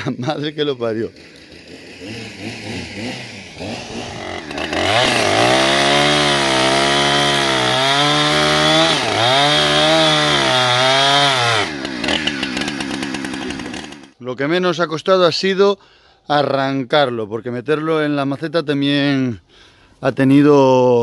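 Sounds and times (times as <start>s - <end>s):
chainsaw cutting through roots: 0.9s - 14.2s.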